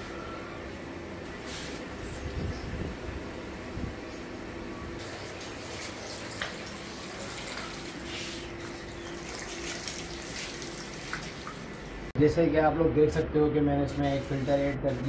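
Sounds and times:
water splashing onto concrete: 5.0s - 12.1s.

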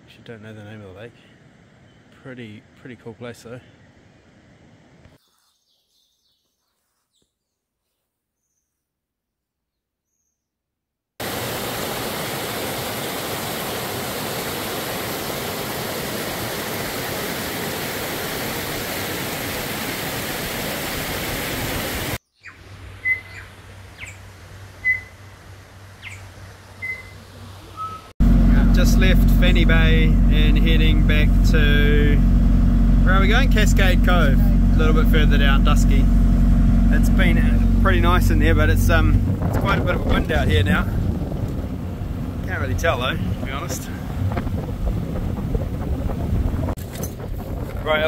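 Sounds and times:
high bird chirps: 5.2s - 8.8s, 22.2s - 24.2s, 24.8s - 25.2s, 26.0s - 28.1s
low steady hum: 28.2s - 46.4s.

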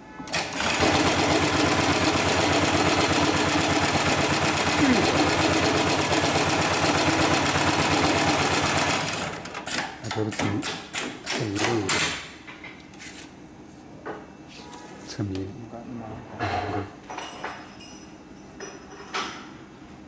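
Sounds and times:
sewing machine needle chatter: 0.3s - 9.8s
sewing machine clicks and clunks: 0.3s - 12.1s.

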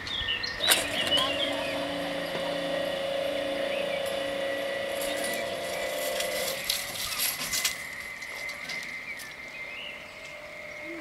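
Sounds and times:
barrier drive humming: 0.0s - 11.0s
faint chirps: 0.4s - 11.0s
thin high whine: 0.6s - 11.0s.

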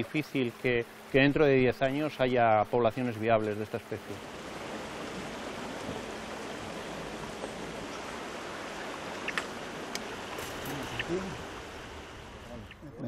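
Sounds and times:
flowing river water: 0.0s - 13.0s
faint clicks: 9.1s - 11.2s.

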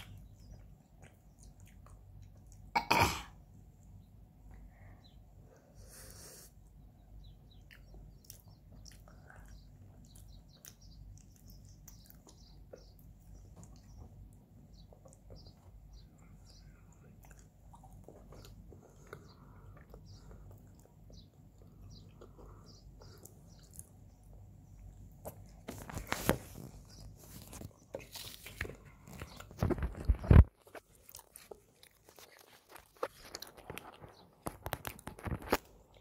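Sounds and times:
chewing mouth sounds: 0.0s - 2.7s, 7.5s - 14.0s, 16.2s - 25.7s.

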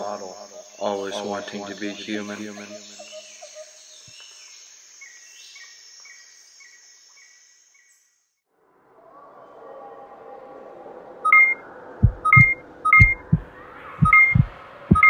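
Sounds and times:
short high chirps: 11.3s - 11.6s, 12.2s - 13.3s, 14.0s - 15.0s.

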